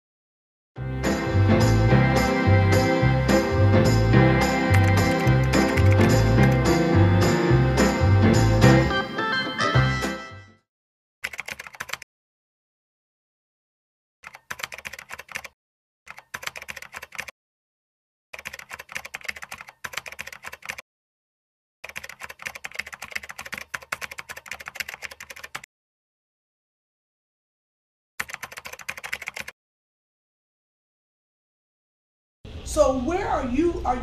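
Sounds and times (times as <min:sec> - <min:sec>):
music: 0:00.8 - 0:10.6
rapid keyboard typing clicks: 0:04.7 - 0:06.7, 0:11.2 - 0:12.0, 0:14.2 - 0:17.3, 0:18.4 - 0:20.8, 0:21.8 - 0:25.7, 0:28.2 - 0:29.5.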